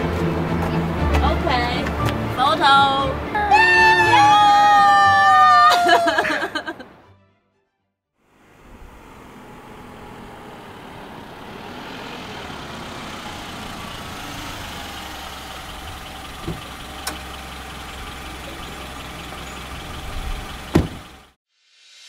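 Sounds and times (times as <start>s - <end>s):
car engine running: 8.2s - 21.4s.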